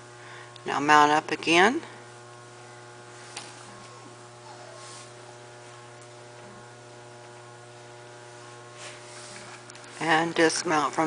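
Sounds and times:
electrical hum: 0.0 - 11.0
faint rustles: 3.1 - 7.6.

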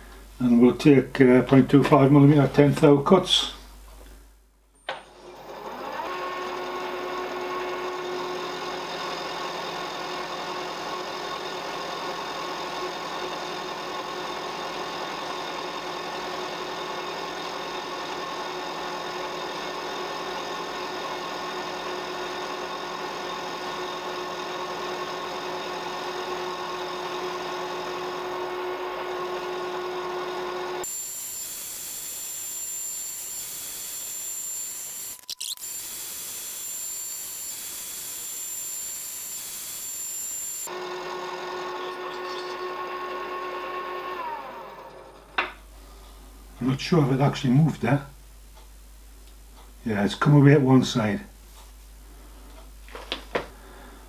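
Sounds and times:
milling machine whine: 4.9 - 45.4.

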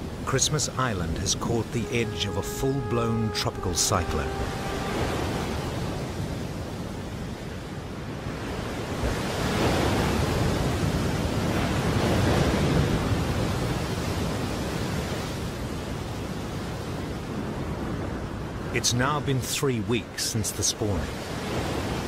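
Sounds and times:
strong wind: 4.3 - 18.8.

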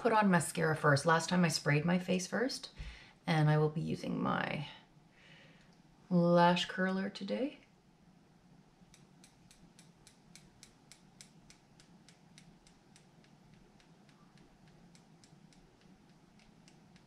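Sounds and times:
eyelash curler clicks: 8.9 - 17.0.

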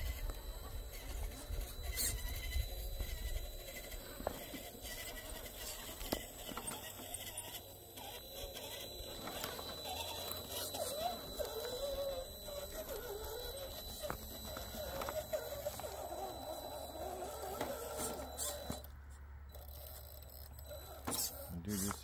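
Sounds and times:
electric motor whining: 0.0 - 18.9, 19.5 - 22.0.

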